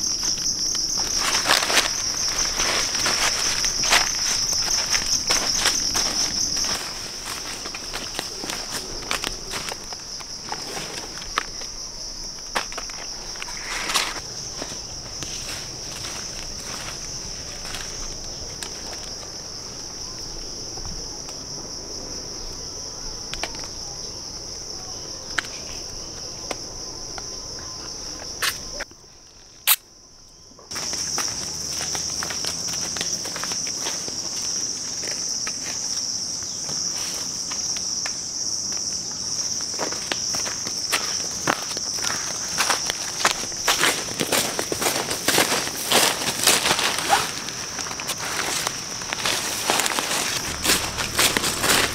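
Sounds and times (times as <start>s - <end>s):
footsteps on dry leaves: 0.0s - 11.6s, 12.4s - 19.4s, 30.7s - 38.0s, 38.8s - 51.9s
insects droning: 0.0s - 51.9s.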